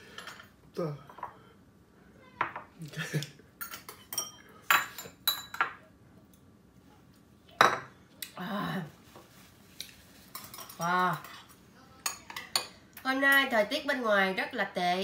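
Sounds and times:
metal utensils clinking on dishes: 3.6 - 5.8, 10.3 - 13.5.

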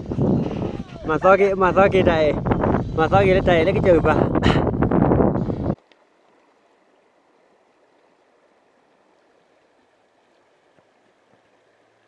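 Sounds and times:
shallow river flowing: 0.0 - 12.0
soft ticks: 5.8 - 6.0.

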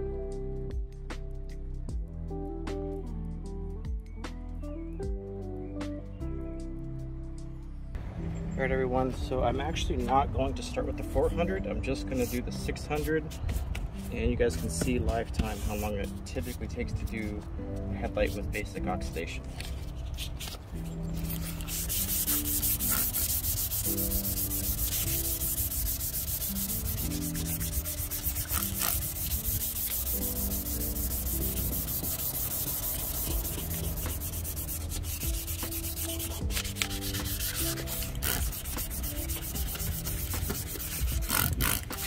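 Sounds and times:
background music: 0.0 - 42.0
sandpaper sanding plastic: 12.1 - 17.4, 18.2 - 42.0.

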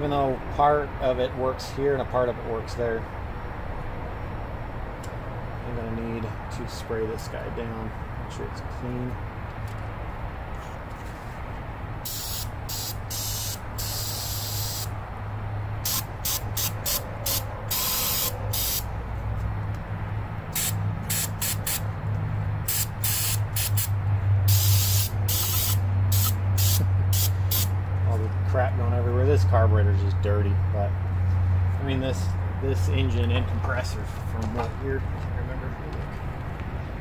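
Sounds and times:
steady low hum: 1.8 - 37.0
aerosol spray bursts: 12.0 - 14.9, 15.8 - 18.9, 20.5 - 21.8, 22.7 - 23.9, 24.5 - 27.7.

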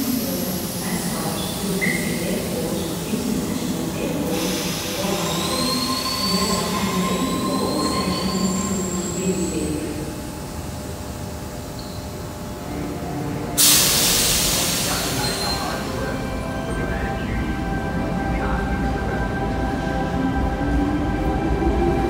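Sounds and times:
electric train humming and whining: 0.0 - 22.0
loud hiss of released air: 13.6 - 15.7.

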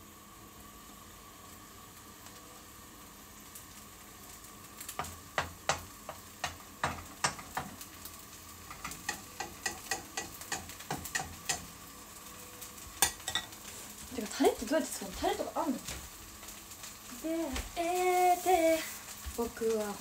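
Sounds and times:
batter frying in a pan: 0.0 - 20.0
utensil tapping against pan: 5.0 - 7.8, 8.7 - 11.7.

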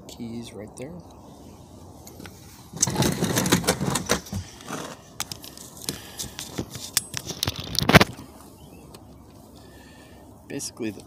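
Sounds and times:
handling rustling and scraping: 1.3 - 9.6.

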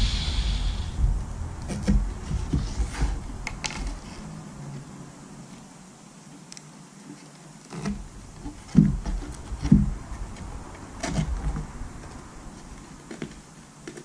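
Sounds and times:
plywood panel knocking and scraping: 7.8 - 11.6.

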